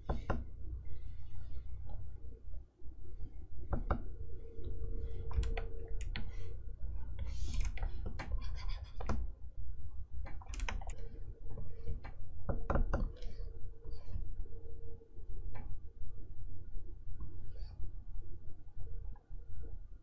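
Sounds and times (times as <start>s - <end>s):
stylus tapping and scratching screen: 0.0s - 2.6s, 3.2s - 9.4s, 10.2s - 14.4s
faint steady hum: 0.0s - 20.0s.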